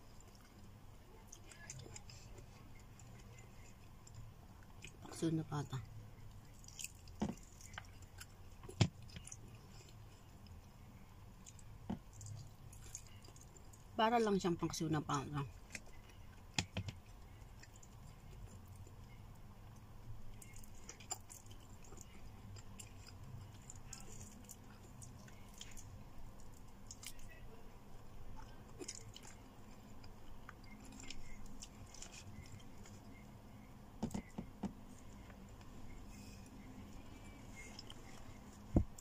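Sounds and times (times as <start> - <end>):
person chewing: 6.4 - 10.6, 11.4 - 13.9, 20.3 - 27.4, 28.4 - 39.0.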